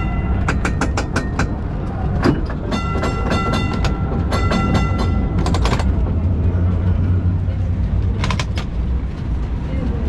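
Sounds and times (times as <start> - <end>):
tram warning bell ringing: 0.0 - 7.3
tram rumbling on rails: 0.0 - 10.0.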